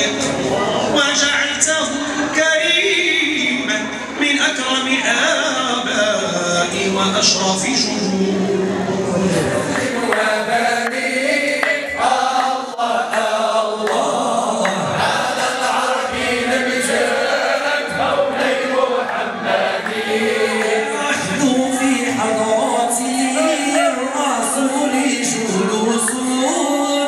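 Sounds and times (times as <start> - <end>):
men's chorus chanting: 0.0 - 27.0
lead voice singing into microphone: 2.1 - 27.0
hand claps: 9.8 - 15.0, 19.0 - 21.1.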